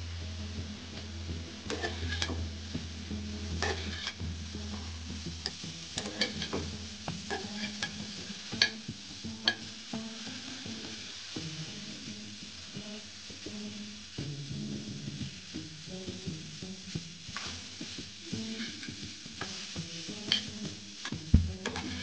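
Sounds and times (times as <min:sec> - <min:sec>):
low steady hum: 0:00.0 - 0:08.3, 0:21.4 - 0:21.8
spatula scraping frying pan: 0:01.6 - 0:02.6, 0:03.4 - 0:10.1, 0:18.4 - 0:22.0.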